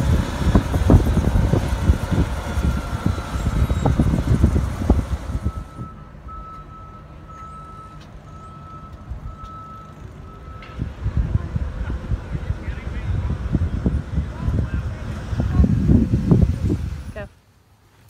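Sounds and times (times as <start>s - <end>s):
vehicle rumbling with knocks: 0.0s - 17.3s
vehicle warning beeper: 2.2s - 10.9s.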